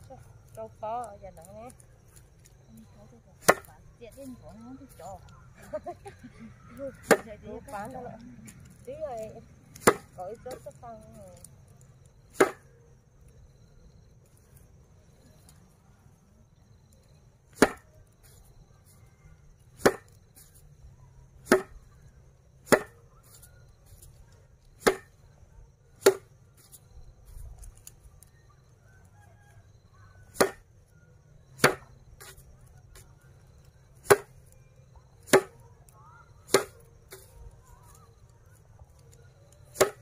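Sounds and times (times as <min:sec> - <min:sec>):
grass bundle whacking a board: 0:03.4 - 0:03.7, 0:07.0 - 0:07.3, 0:09.7 - 0:10.2, 0:12.3 - 0:12.6, 0:17.5 - 0:17.9, 0:19.8 - 0:20.5, 0:21.4 - 0:21.8, 0:22.6 - 0:23.4, 0:24.8 - 0:25.1, 0:26.0 - 0:26.8, 0:30.3 - 0:30.6, 0:31.6 - 0:33.0, 0:34.0 - 0:34.4, 0:35.2 - 0:35.6, 0:36.5 - 0:38.0, 0:39.7 - 0:40.0.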